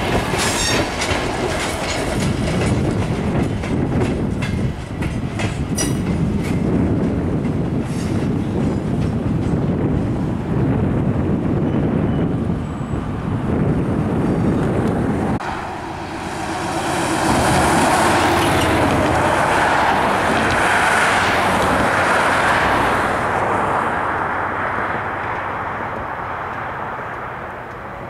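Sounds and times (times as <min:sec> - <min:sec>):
cars driving past: 0:15.0 - 0:28.0.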